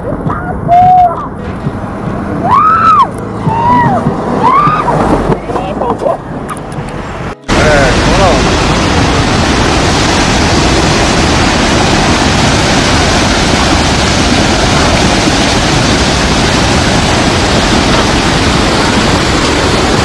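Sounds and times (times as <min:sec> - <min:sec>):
floodwater rushing: 0:01.2 - 0:20.0.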